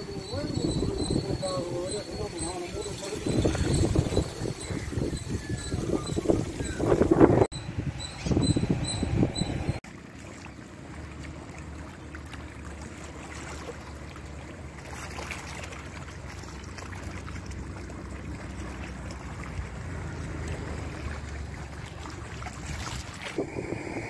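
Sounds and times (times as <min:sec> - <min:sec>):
rippling lake water: 0:00.0 - 0:07.5, 0:08.5 - 0:24.0
wind: 0:00.0 - 0:24.0
faint small splashes: 0:09.8 - 0:23.4.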